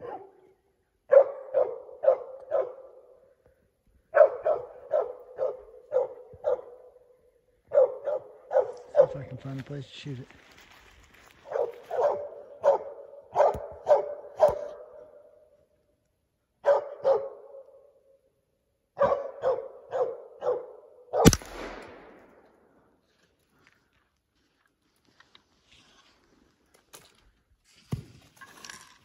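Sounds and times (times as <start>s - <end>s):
dog barking: 0.0s - 0.5s, 1.1s - 3.1s, 4.1s - 7.0s, 7.7s - 9.2s, 11.4s - 15.1s, 16.6s - 17.7s, 19.0s - 21.3s
gunshot with echo: 21.2s - 22.6s.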